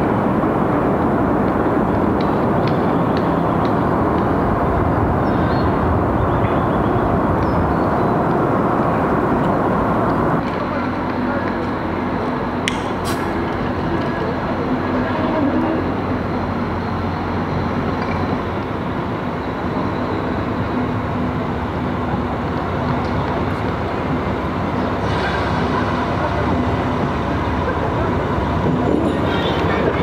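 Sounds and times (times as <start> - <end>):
low engine hum: 0.0 - 30.0
train rumbling past: 0.0 - 30.0
sharp clicks: 12.7 - 13.3.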